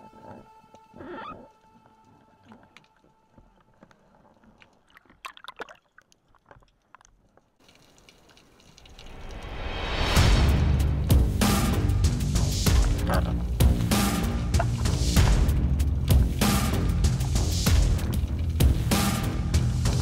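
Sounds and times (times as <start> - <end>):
faint underwater water movement: 0.0 - 10.2
underwater clicks and crackles: 0.2 - 9.5.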